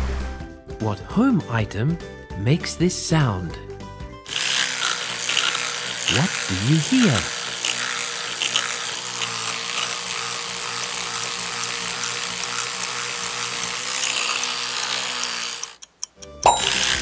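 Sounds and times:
electric toothbrush buzzing: 0:04.2 - 0:15.8, 0:16.5 - 0:17.0.

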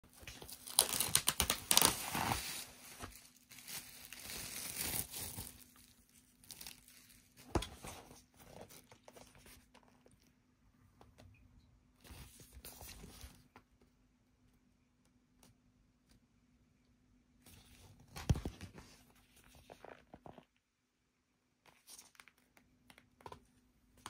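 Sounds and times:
plastic wrap crinkling: 0:00.1 - 0:07.5.

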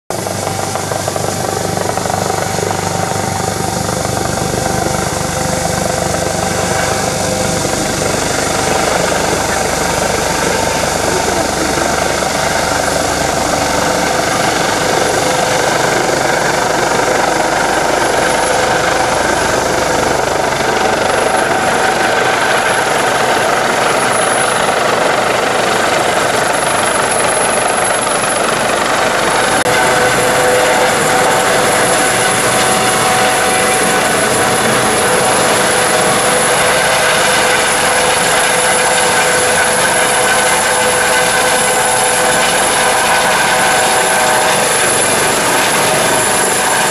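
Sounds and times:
helicopter rotor and turbine noise: 0:00.1 - 0:46.9
high continuous turbine whine: 0:00.1 - 0:46.9.

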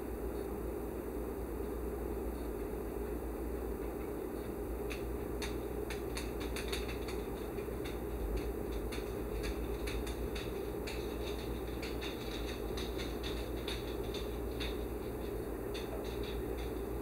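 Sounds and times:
toaster humming: 0:02.7 - 0:17.0
hot toaster ticking and clicking: 0:03.8 - 0:17.0.

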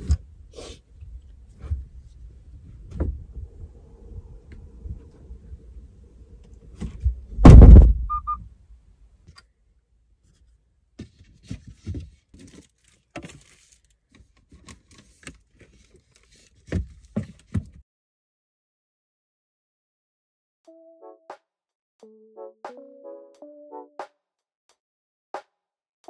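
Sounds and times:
steady outside noise: 0:00.0 - 0:12.6
car tailgate thunk: 0:07.4 - 0:08.1
short beeps: 0:08.1 - 0:08.4.

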